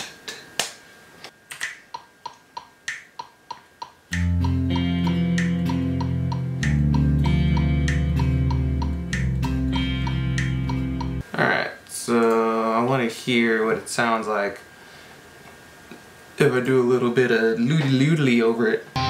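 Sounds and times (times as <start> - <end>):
metronome click ticking: 1.6 - 11.2
sustained chord with bass note: 4.1 - 11.2.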